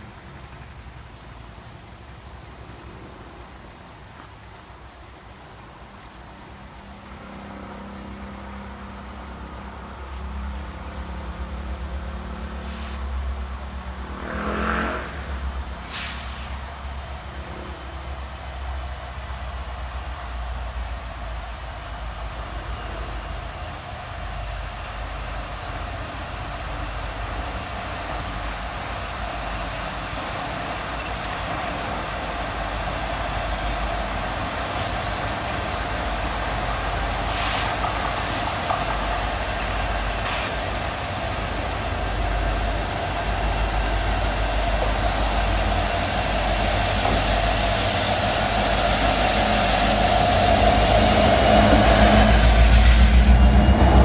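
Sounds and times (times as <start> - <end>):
diesel locomotive rumble: 0.0 - 54.0
high-pitched wheel squeal: 13.8 - 54.0.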